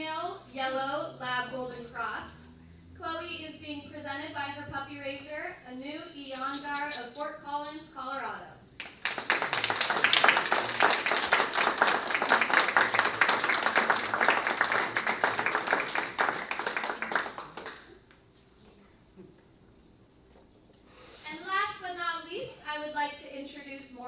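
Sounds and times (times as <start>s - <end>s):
audience applauding: 8.8s - 18.1s.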